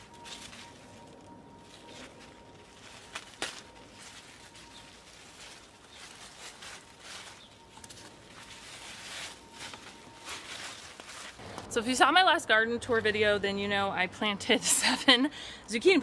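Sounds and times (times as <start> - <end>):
faint steady high tone: 0.0 - 5.9
leaves and stems rustling: 0.0 - 14.1.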